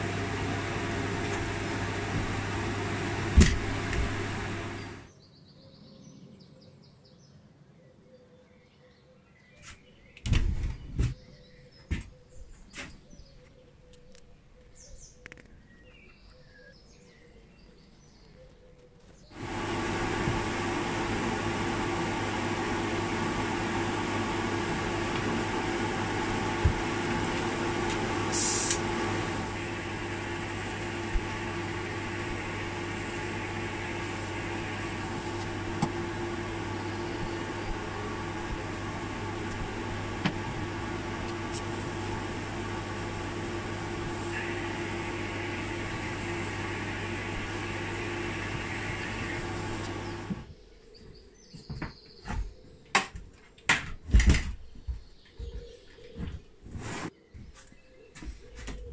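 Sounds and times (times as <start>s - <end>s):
extraction fan humming: 0.0s - 5.1s, 19.3s - 50.6s
short high hiss: 28.3s - 28.9s.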